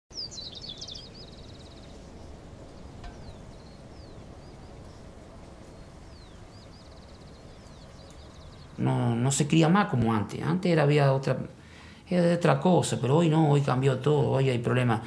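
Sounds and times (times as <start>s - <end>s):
low outdoor rumble: 0.1s - 15.0s
small birds chirping and trilling: 0.1s - 15.0s.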